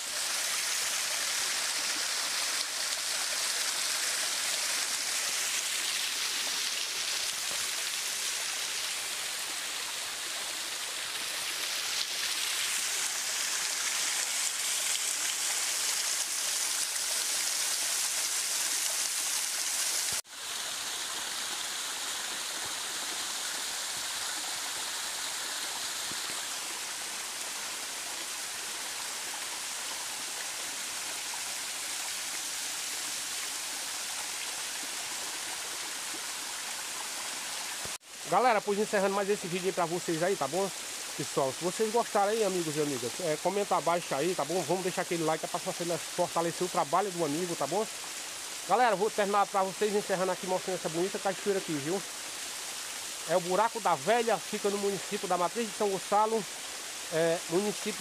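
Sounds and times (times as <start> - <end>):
waterfall splashing on stones: 0.0 - 58.0.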